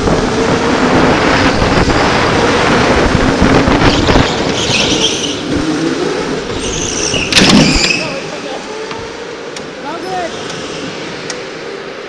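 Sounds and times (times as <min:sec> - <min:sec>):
tyre and wind rumble: 0:00.0 - 0:12.0
tyre squeal: 0:03.9 - 0:05.8, 0:06.5 - 0:08.8.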